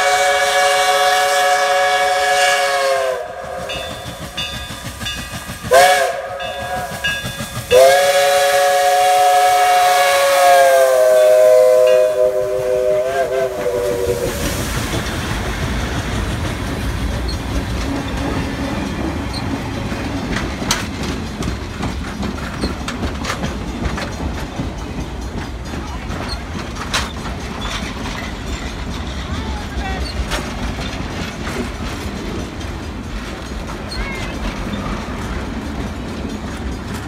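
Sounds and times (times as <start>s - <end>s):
steam locomotive chime whistle: 0.0s - 15.8s
train rumbling past: 0.0s - 37.0s
wheels clicking over rail joints: 3.4s - 12.2s, 13.4s - 37.0s.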